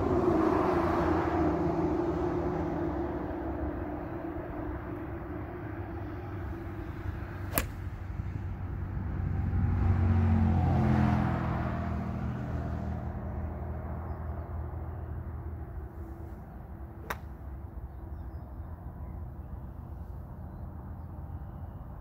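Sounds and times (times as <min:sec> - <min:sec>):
vehicle passing: 0:00.0 - 0:13.9
golf club striking ball: 0:07.0 - 0:08.0, 0:17.0 - 0:17.4.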